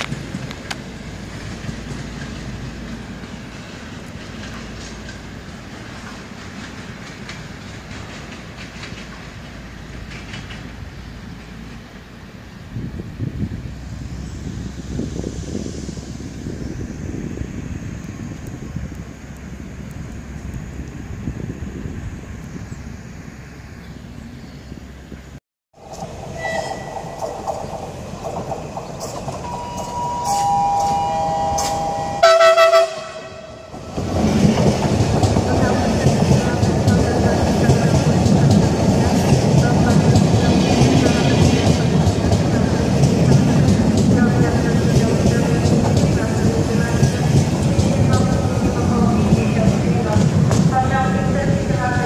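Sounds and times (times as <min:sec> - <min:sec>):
train wheels clacking over rail joints: 0:00.0 - 0:11.9, 0:25.8 - 0:30.0, 0:33.8 - 0:51.6
train low rumble: 0:00.0 - 0:52.0
train horn blast: 0:26.3 - 0:27.2, 0:29.5 - 0:33.9.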